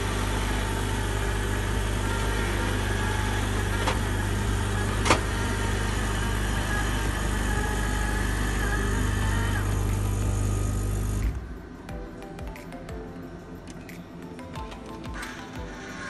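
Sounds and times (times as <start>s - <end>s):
vending machine motor hum: 0.0s - 11.6s.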